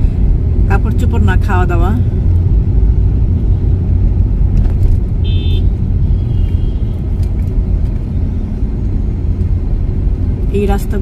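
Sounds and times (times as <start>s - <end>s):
car engine and tyres rumbling: 0.0s - 11.0s.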